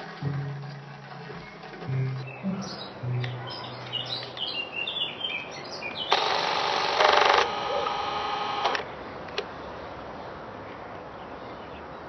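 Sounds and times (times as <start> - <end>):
birds chirping: 1.1 - 12.0
film projector rattling: 6.1 - 8.8.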